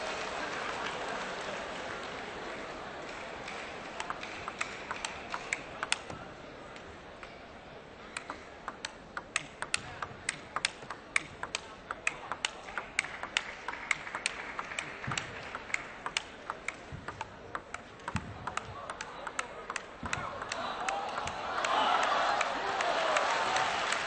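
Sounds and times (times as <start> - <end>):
table tennis ball clicks: 3.2 - 6.2, 8.1 - 21.8.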